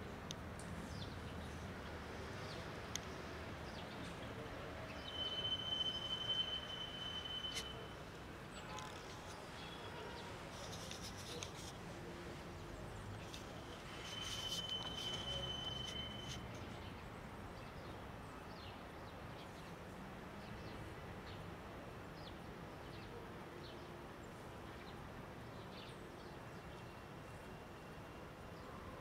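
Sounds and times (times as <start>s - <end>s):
outdoor background noise: 0.0s - 29.0s
faint bird chirps: 4.8s - 11.7s, 13.2s - 16.8s
thin high whistle-like tone: 4.9s - 8.1s, 13.8s - 16.5s.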